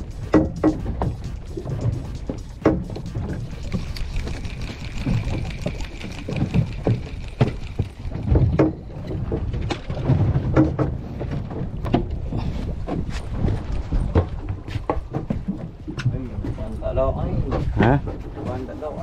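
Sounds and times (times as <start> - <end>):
low rumble: 0.0 - 15.1
water slapping against boat hull: 0.0 - 16.7.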